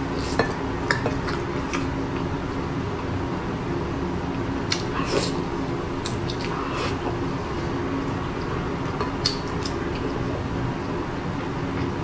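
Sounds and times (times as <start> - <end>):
chewing with wet smacks: 0.1 - 2.4, 4.6 - 10.6.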